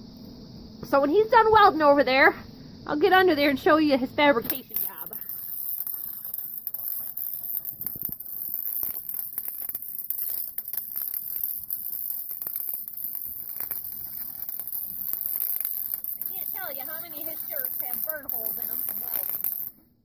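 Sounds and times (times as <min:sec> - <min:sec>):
welding arc crackling and popping: 0:04.4 - 0:19.8.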